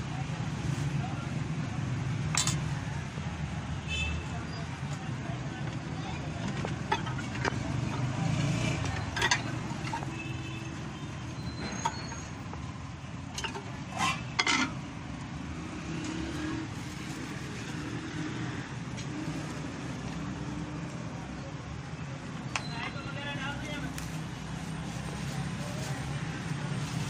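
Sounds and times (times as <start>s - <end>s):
traffic rumble: 0.0s - 27.0s
spoon and jar lids clinking: 2.3s - 2.7s, 8.8s - 10.1s, 13.4s - 14.8s.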